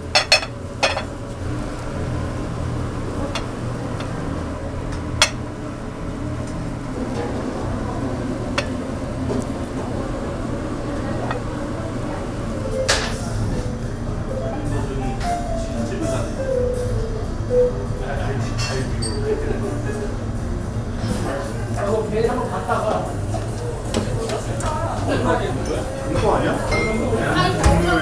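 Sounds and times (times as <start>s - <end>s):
utensils and dishes clinking: 0.0s - 1.2s, 4.9s - 5.5s, 12.7s - 13.3s, 18.5s - 20.1s, 22.9s - 28.0s.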